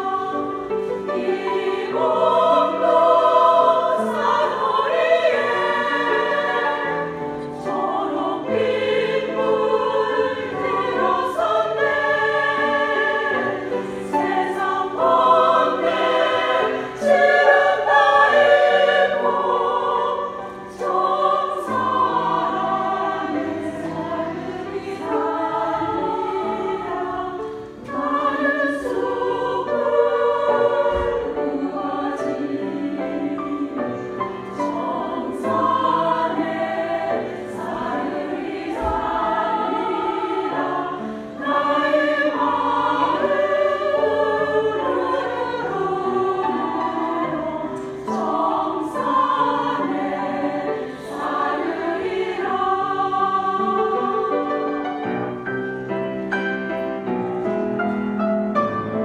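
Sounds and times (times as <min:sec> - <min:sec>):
women's choir singing in harmony: 0:00.0 - 0:59.0.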